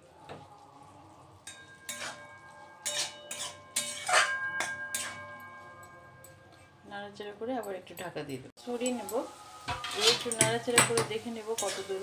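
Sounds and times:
metal spatula scraping metal pan: 1.4s - 6.8s, 8.9s - 12.0s.

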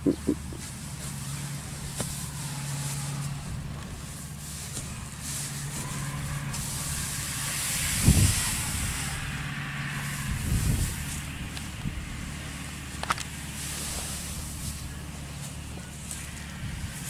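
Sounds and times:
low thumps: 0.0s - 0.6s
engine humming: 0.0s - 17.0s
hissing rush: 4.2s - 11.4s.

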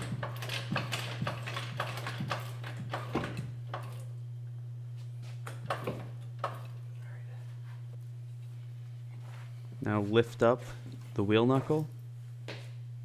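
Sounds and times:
floor jack clicks and knocks: 0.0s - 3.9s
steady low hum: 0.0s - 13.0s.

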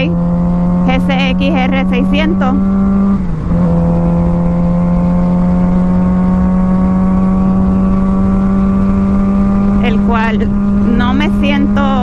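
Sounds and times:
motorcycle engine under load: 0.0s - 12.0s.

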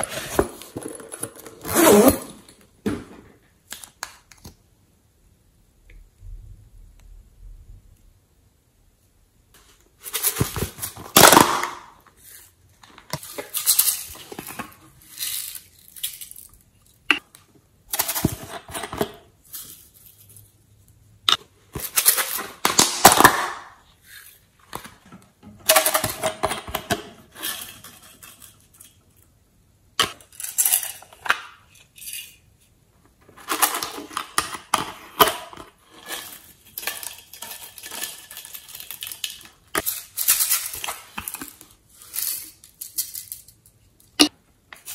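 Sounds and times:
glitter rattling in plastic containers: 36.0s - 43.7s.

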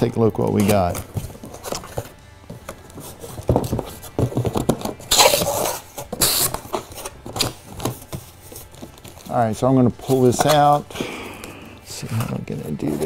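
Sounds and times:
handling knocks on box: 2.7s - 5.2s.

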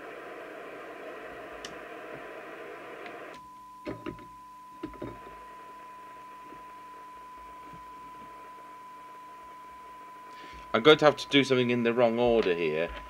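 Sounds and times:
radio receiver hiss: 0.0s - 3.4s, 4.8s - 13.0s
steady test tone: 3.4s - 13.0s.

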